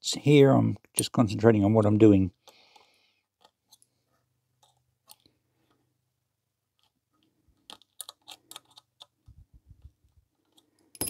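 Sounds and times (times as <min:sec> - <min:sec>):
sharp clicks and crunchy scrapes: 0:06.8 - 0:10.8.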